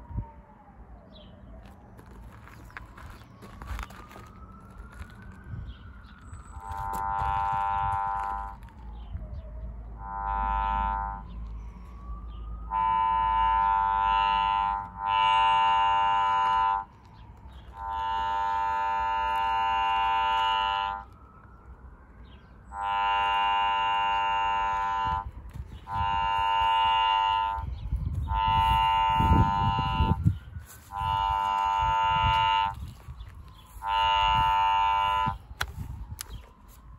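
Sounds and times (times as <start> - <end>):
buzzing tone bursts: 6.5 - 8.6, 10.0 - 11.4, 12.7 - 16.9, 17.7 - 21.0, 22.8 - 25.3, 25.9 - 27.7, 28.3 - 30.3, 30.9 - 32.9, 33.8 - 35.5.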